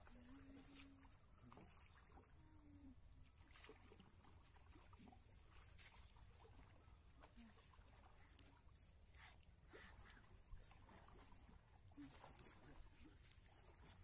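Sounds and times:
faint ticks: 6.7 - 9.8.

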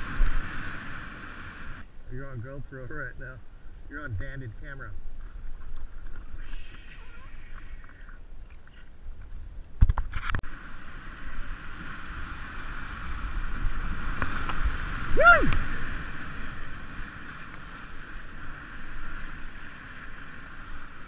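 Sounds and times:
whitewater rushing and splashing: 0.0 - 1.8, 10.5 - 21.0.

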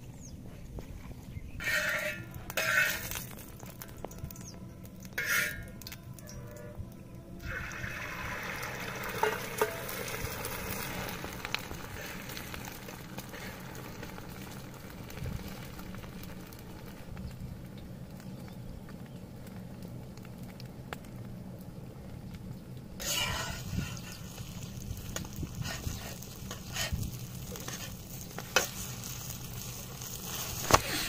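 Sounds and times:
egg sizzling in hot oil: 7.4 - 18.3, 23.0 - 31.0.

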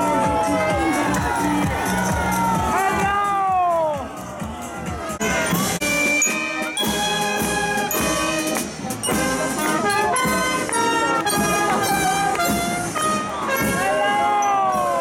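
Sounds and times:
saxophones: 5.2 - 14.6
trumpets: 5.2 - 14.9.

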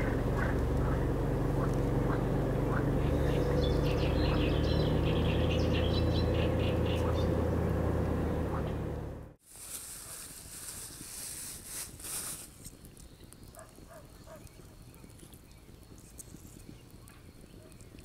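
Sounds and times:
birds chirping: 0.0 - 9.3, 13.0 - 18.0
low engine-like drone: 0.0 - 9.4.

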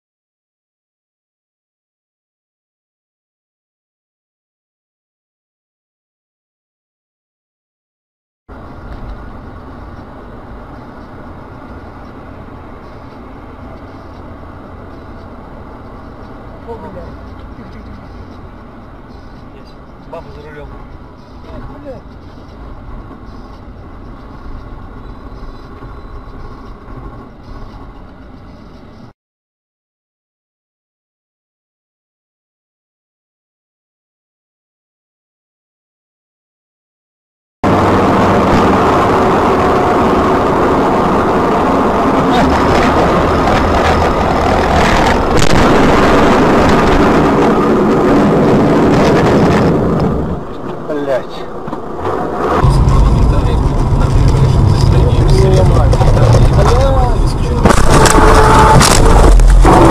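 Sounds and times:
moving vehicle rumble: 8.5 - 29.2, 37.6 - 59.9.

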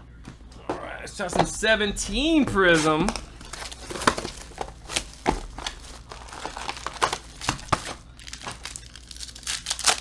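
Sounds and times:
foil wrapper crinkling and tearing: 3.4 - 10.0.

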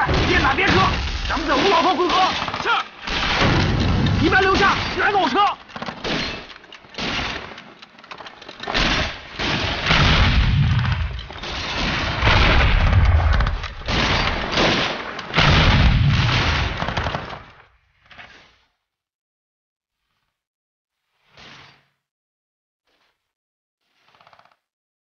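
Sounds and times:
heavy explosion booms: 0.0 - 1.6, 3.1 - 5.0, 9.4 - 14.8, 15.4 - 16.8
rapid gunfire: 0.0 - 7.6, 8.7 - 17.6.

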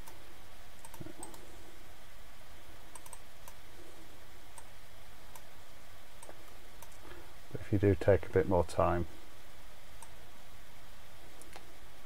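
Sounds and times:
computer mouse clicks: 0.0 - 0.2, 0.8 - 1.5, 2.9 - 3.6, 4.5 - 4.7, 6.2 - 7.0, 11.4 - 11.7
faint background noise: 0.0 - 12.0.

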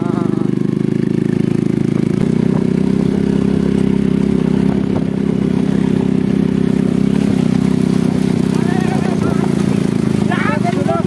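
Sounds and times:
motorcycle engine running: 0.0 - 11.0
bike clattering on stones: 2.2 - 11.0.

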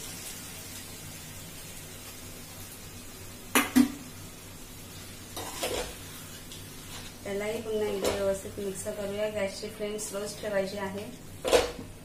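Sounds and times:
spatula scraping in a pan: 5.3 - 8.4.

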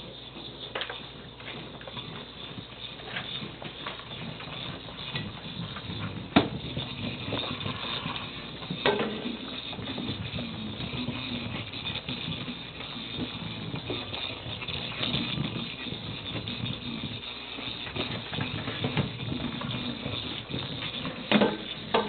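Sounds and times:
toy ball knocking on tiled floor: 6.3 - 11.2.

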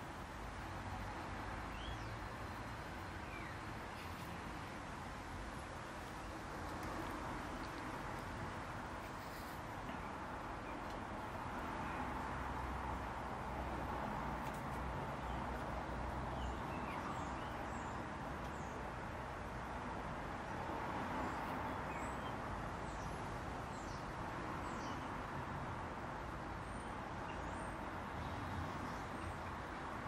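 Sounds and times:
robin singing faintly: 1.7 - 4.4, 16.2 - 18.9.

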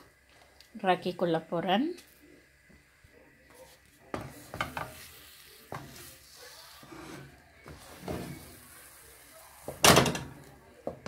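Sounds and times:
wooden spatula scraping pan: 3.6 - 8.9.

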